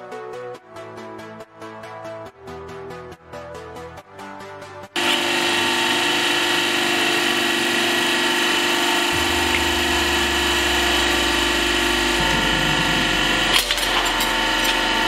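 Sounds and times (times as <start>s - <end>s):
deeper hum: 5.0s - 15.0s
hydraulic pump whining: 5.0s - 15.0s.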